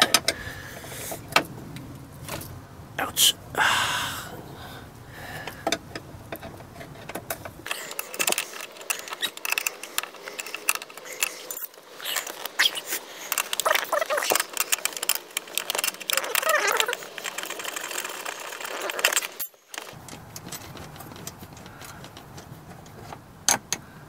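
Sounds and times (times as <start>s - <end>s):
seatbelt retractor clinks and rattles: 5.6s - 23.8s.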